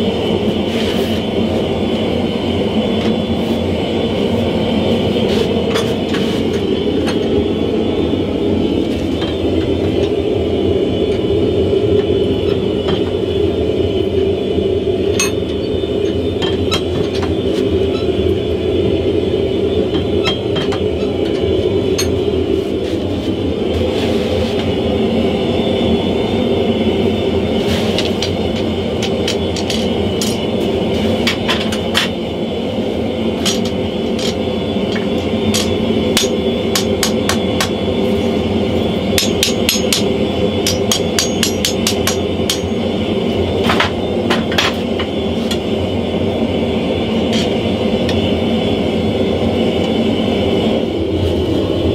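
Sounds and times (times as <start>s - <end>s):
gas forge burner roaring: 0.0s - 51.9s.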